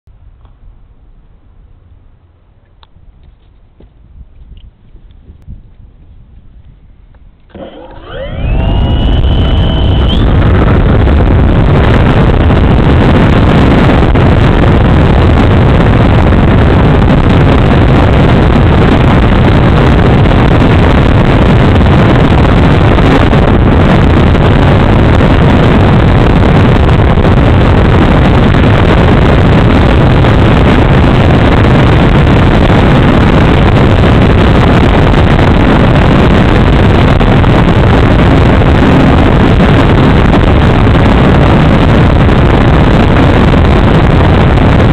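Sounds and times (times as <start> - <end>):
wind rushing over microphone: 0.1 - 44.9
model plane propeller and motor: 7.4 - 10.9.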